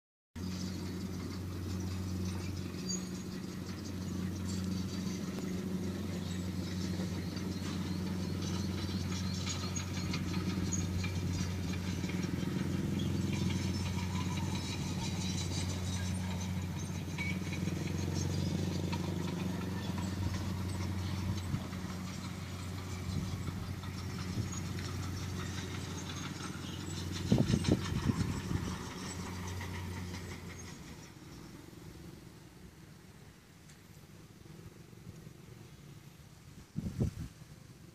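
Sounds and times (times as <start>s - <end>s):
low two-tone motor hum: 0.4s - 37.9s.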